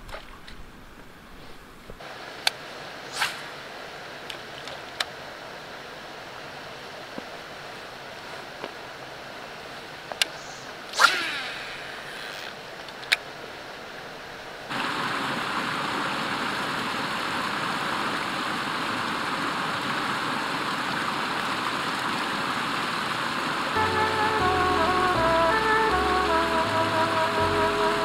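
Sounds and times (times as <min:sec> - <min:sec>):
water rushing over rocks: 0:11.0 - 0:25.0.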